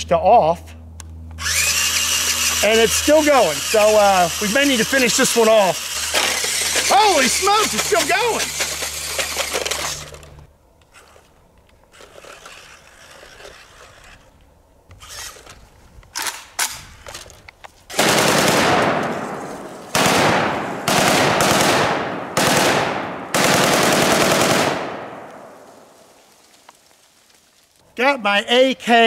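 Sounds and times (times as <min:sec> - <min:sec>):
automatic rifle bursts: 0:17.9 - 0:19.3, 0:19.9 - 0:25.4.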